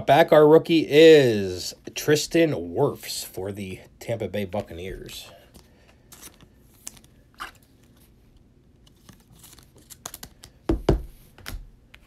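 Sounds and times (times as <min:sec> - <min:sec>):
cards rustling and clicking: 0:04.5 - 0:12.0
cards knocking on tabletop: 0:10.7 - 0:11.6.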